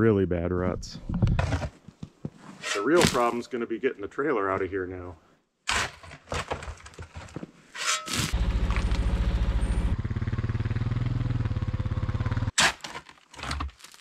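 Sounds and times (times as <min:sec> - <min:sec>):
shovel scraping gravel: 0:02.4 - 0:03.5, 0:05.7 - 0:09.1, 0:12.6 - 0:14.0
quad bike engine running: 0:08.4 - 0:12.5.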